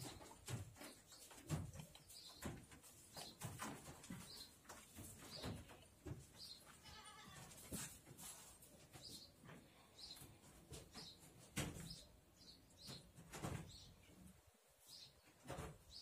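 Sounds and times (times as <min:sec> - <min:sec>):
knocks and rustling on straw: 0:00.0 - 0:09.6
bleating call: 0:06.8 - 0:07.5.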